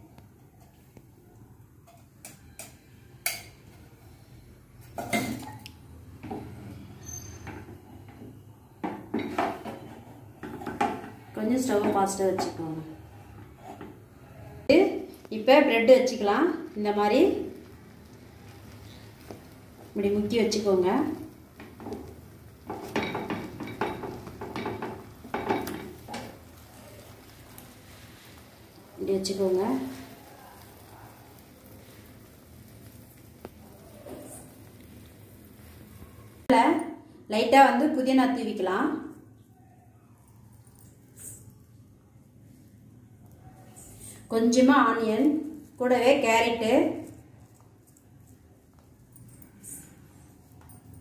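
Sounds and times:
faint sizzle: 0:00.0 - 0:51.0
kitchenware clinking and knocking: 0:04.9 - 0:05.6, 0:07.4 - 0:12.8, 0:21.6 - 0:26.4.

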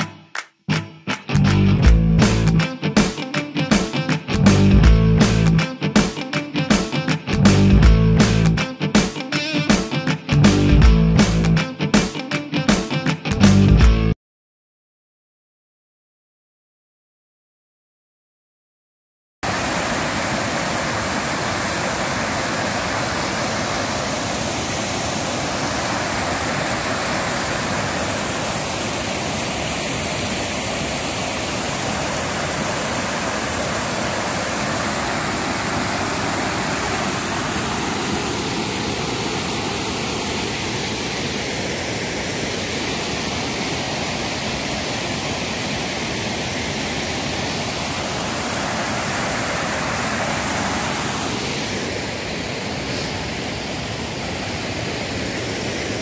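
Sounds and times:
waterfall rushing water: 0:19.4 - 0:56.0.

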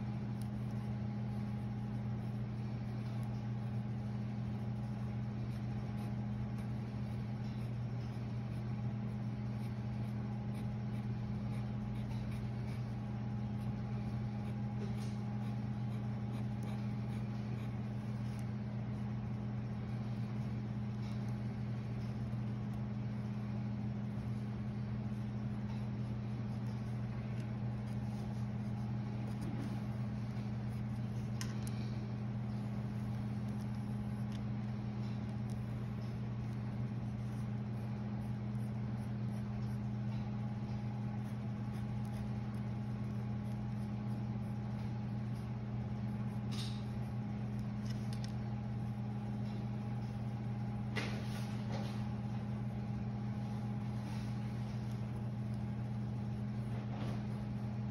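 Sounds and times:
low machinery hum: 0:00.0 - 0:57.9
pencil scratching on paper: 0:00.3 - 0:18.5, 0:25.1 - 0:32.0, 0:32.9 - 0:39.9, 0:40.8 - 0:45.5.

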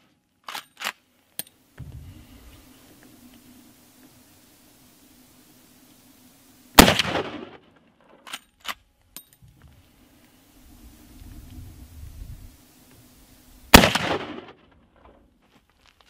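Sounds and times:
rifle shot with echo: 0:06.8 - 0:07.6, 0:13.7 - 0:14.7.

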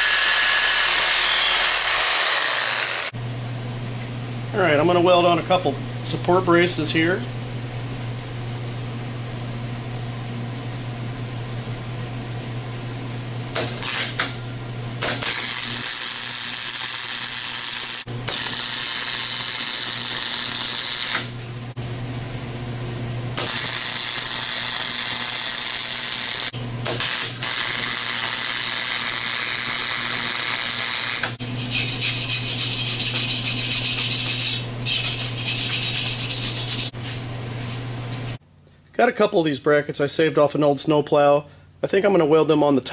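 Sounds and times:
arc welding crackle: 0:15.1 - 0:21.4, 0:23.4 - 0:32.2
wire brush scrubbing metal: 0:31.4 - 0:36.9.

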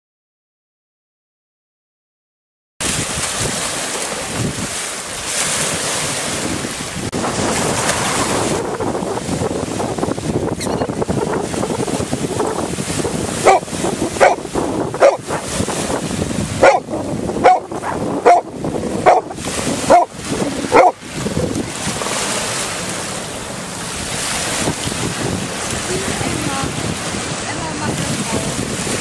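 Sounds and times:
waves breaking on pebbles: 0:02.8 - 0:10.4, 0:11.4 - 0:29.0
wind on microphone: 0:02.8 - 0:29.0
dog barking: 0:13.4 - 0:15.5, 0:16.6 - 0:20.1, 0:20.7 - 0:21.0.

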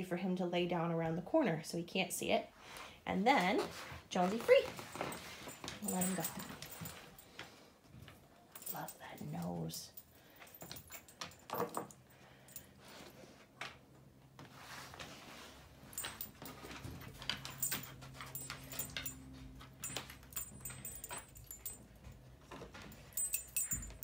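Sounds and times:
chain collar jingling: 0:04.3 - 0:07.4, 0:08.5 - 0:12.9, 0:15.8 - 0:24.0.

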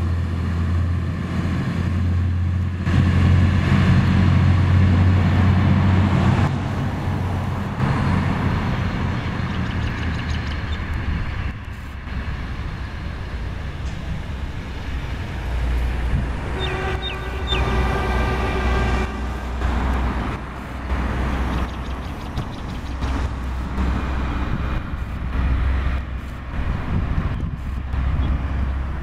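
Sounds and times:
railcar engine running: 0:00.0 - 0:29.0
railcar horn: 0:16.4 - 0:20.3.

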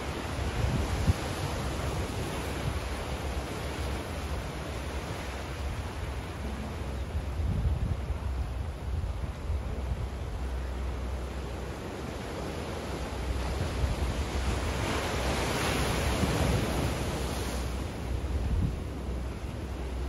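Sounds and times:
low rumble of wind: 0:00.0 - 0:20.0
waves washing against rocks: 0:11.5 - 0:20.0.

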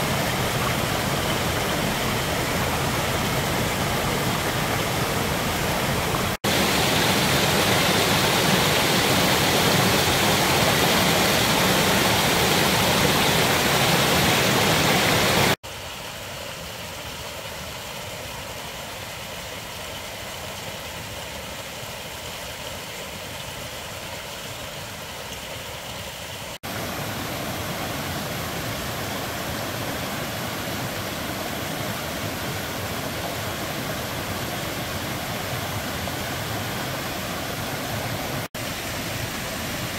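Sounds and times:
water trickling: 0:00.0 - 0:15.4
stream rushing over rocks: 0:00.0 - 0:39.9.

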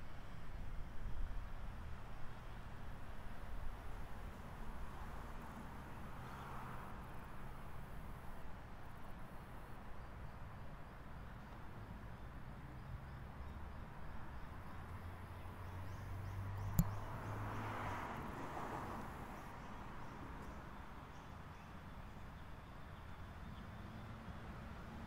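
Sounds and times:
sharp click: 0:16.7 - 0:17.0.

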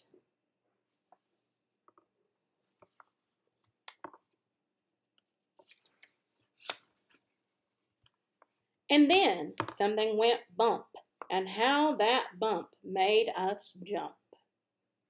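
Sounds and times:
paper pages rustling: 0:05.6 - 0:07.4.

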